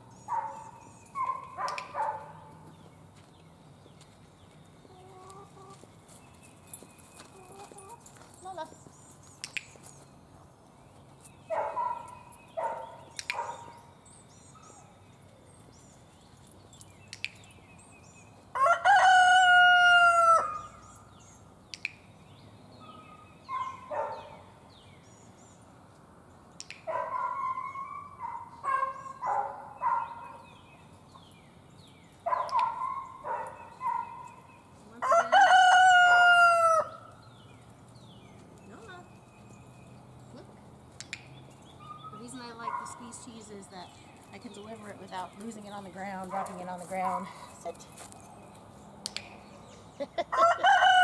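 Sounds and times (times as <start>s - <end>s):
rooster crowing: 18.6s - 20.7s, 35.0s - 37.1s, 50.3s - 51.0s.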